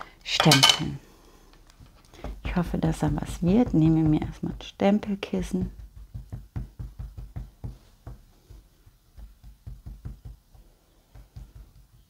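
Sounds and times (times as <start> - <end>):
ink pad tapping on stamp: 5.4 - 12.0.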